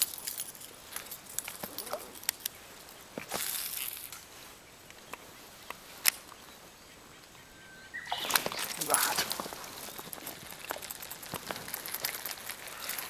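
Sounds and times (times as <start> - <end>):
fishing line running out: 8.1 - 13.0.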